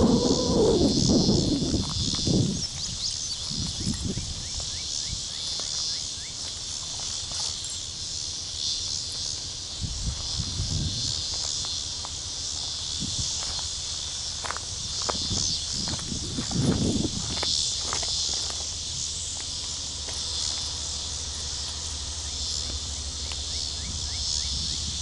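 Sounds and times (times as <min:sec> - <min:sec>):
low rumbles: 0:00.0 - 0:02.7
insects chorus: 0:00.0 - 0:25.0.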